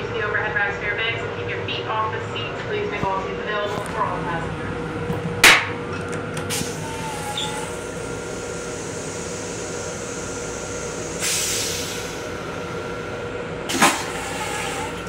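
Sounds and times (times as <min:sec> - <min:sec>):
train running noise and hum: 0:00.0 - 0:15.0
hiss: 0:06.5 - 0:12.2.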